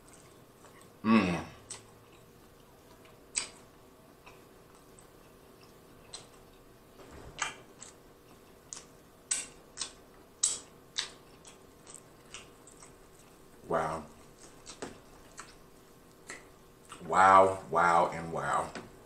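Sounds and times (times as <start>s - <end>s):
wet mouth clicks and smacks: 8.7s - 12.9s.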